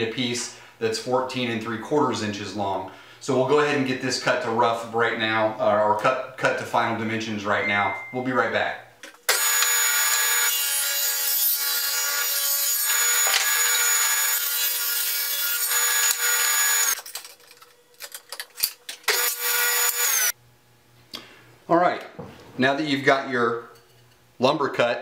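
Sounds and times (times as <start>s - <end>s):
table saw cutting wood: 9.3s - 17.0s, 19.1s - 20.4s.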